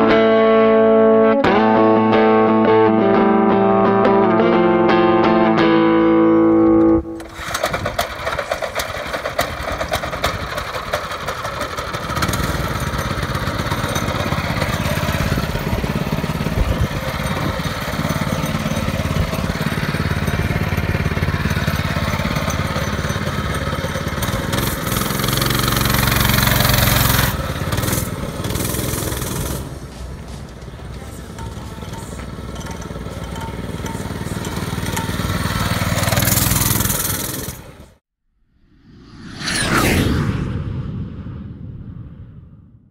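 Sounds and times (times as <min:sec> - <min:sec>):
guitar music: 0:00.0 - 0:07.3
mini bike engine running: 0:06.4 - 0:38.0.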